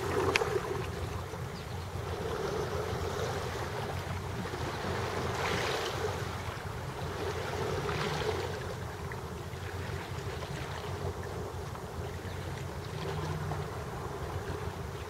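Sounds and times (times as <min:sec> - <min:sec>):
small waves splashing on rocks: 0:00.0 - 0:01.0
wind rumble on microphone: 0:00.0 - 0:15.0.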